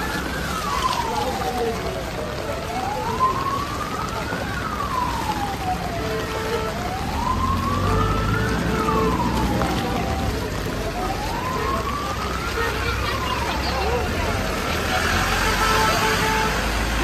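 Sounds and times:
emergency siren wailing: 0:00.0 - 0:17.0.

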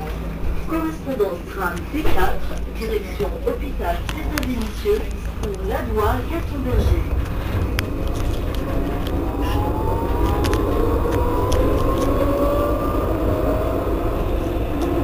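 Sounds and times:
low rumble: 0:00.0 - 0:15.0
tram traction drive whining: 0:00.0 - 0:15.0.

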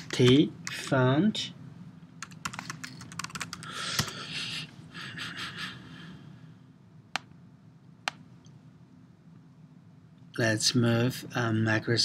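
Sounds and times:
keyboard typing: 0:02.2 - 0:04.2.

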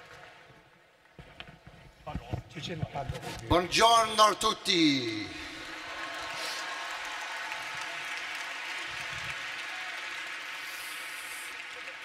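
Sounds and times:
large audience applauding: 0:05.0 - 0:12.0.

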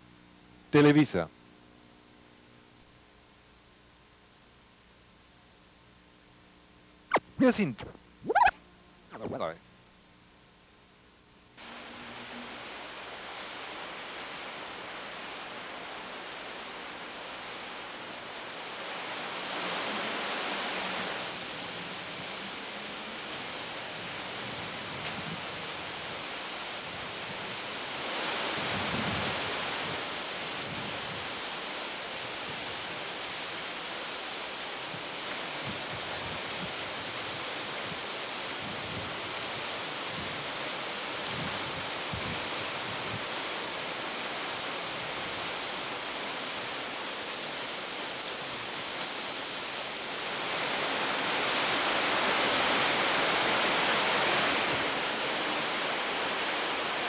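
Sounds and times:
heavy rain: 0:11.6 - 0:57.0.

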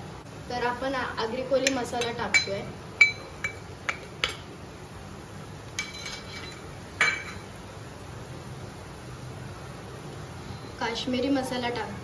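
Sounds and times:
steel spoon clinking on steel cup: 0:01.6 - 0:04.4, 0:05.8 - 0:07.4.

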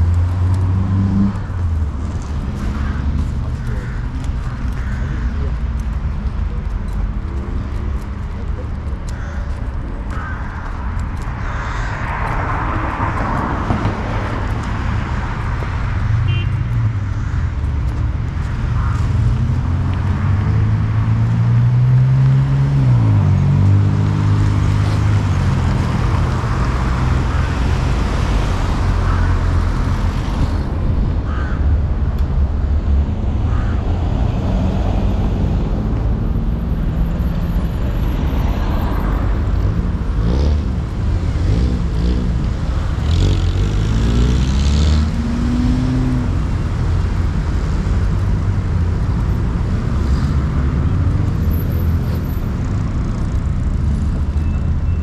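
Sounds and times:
car engines passing: 0:00.0 - 0:55.0
engine revving: 0:39.2 - 0:52.2.

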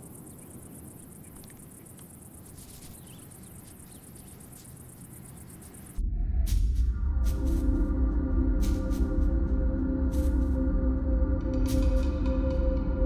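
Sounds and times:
insect trilling: 0:00.0 - 0:06.0
music with drone and gong tones: 0:06.8 - 0:13.0.

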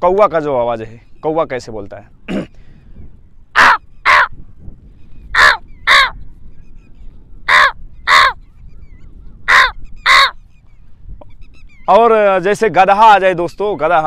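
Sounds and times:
man imitating crow caws: 0:03.6 - 0:04.4, 0:05.4 - 0:06.2, 0:07.5 - 0:08.4, 0:09.5 - 0:10.4.

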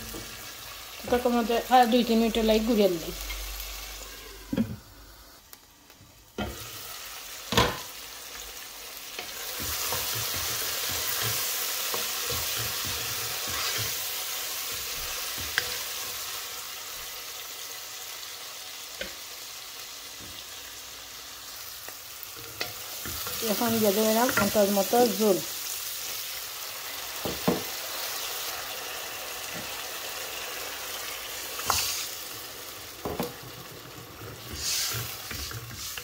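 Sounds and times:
food sizzling in a pan: 0:00.0 - 0:36.0
wooden spoon scraping a pan: 0:09.2 - 0:15.9, 0:33.1 - 0:36.0.

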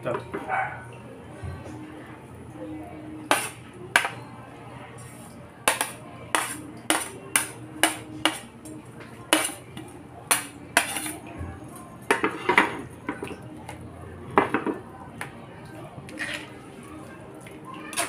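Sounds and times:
utensil scraping a plate: 0:05.7 - 0:08.5, 0:10.3 - 0:11.2.

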